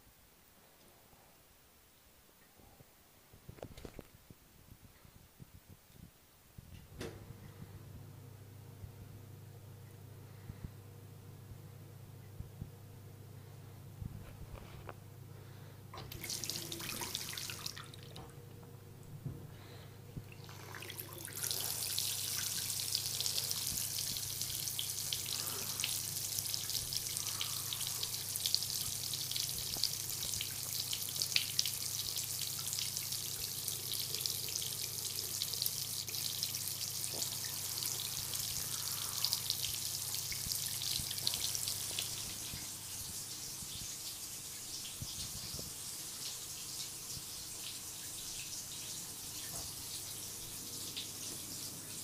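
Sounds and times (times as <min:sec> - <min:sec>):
tap water splashing in sink: 0:16.0 - 0:18.4.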